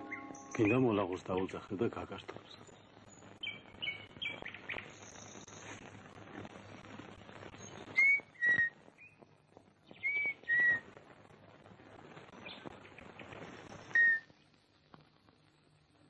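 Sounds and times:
high whistled call: 0.0s - 1.0s, 7.6s - 9.2s, 10.0s - 10.9s, 13.9s - 14.3s
steady hiss with crackles: 0.0s - 16.0s.

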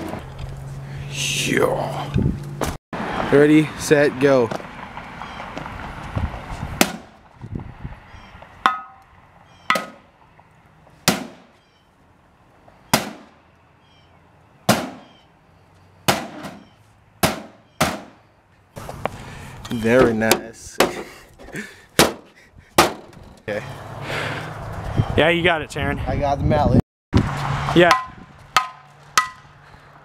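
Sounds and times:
wooden bat whacking plastic: 9.7s - 10.0s, 11.0s - 11.5s, 12.9s - 13.3s, 16.1s - 18.2s, 27.9s - 29.5s.

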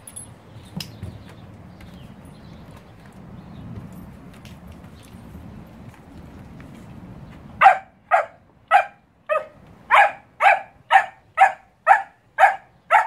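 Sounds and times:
puppy barking: 7.6s - 13.0s.

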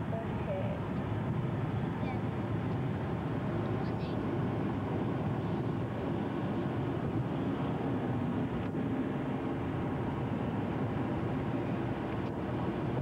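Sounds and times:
car road and engine noise: 0.0s - 13.0s.

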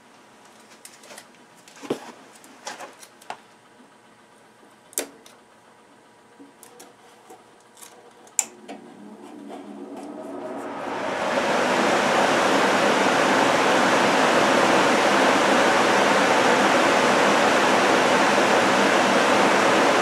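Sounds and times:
furnace fan rushing air: 0.0s - 20.0s.

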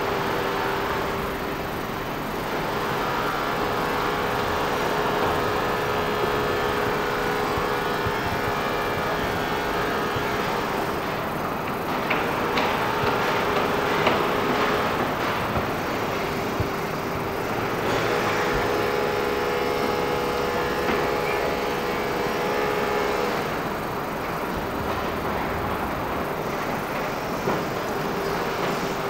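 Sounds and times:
vehicle engine drone: 0.0s - 29.0s.

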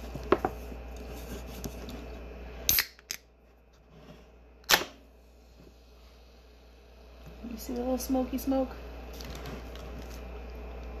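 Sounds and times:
can opening crack and pop: 2.7s - 3.3s, 4.6s - 5.0s.

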